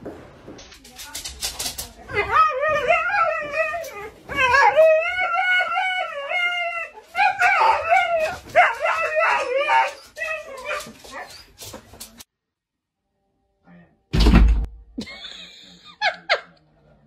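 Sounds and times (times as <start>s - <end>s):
dog howling: 2.2s - 11.3s.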